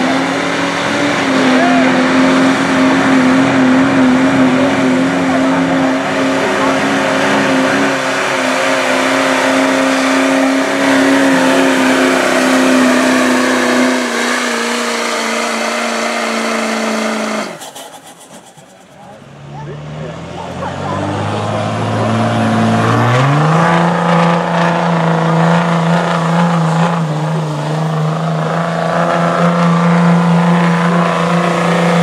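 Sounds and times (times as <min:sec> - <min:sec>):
diesel engine under heavy load: 0:00.0 - 0:32.0.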